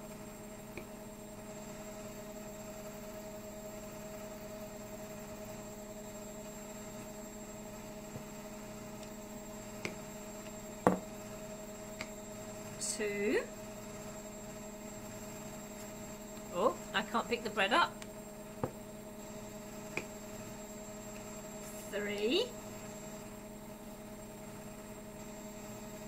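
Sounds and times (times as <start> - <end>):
electrical hum: 0.0 - 26.0
sharp knock on table: 10.8 - 11.0.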